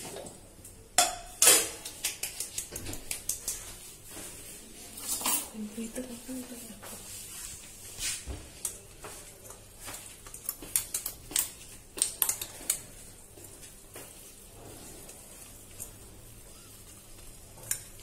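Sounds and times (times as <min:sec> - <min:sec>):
faint sizzle in a pan: 0:12.2 - 0:18.0.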